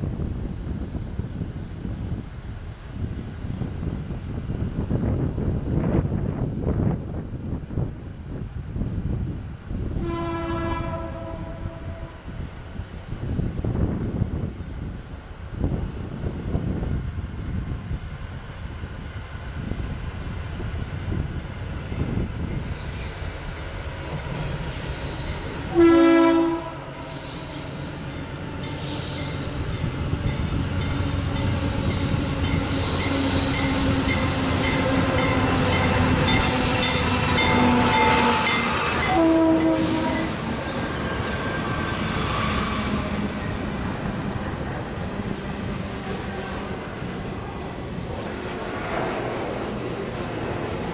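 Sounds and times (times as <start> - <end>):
train rumble of engines and wheels: 0.0 - 50.9
locomotive horn blasts: 10.0 - 12.2, 25.7 - 27.0, 34.6 - 40.6.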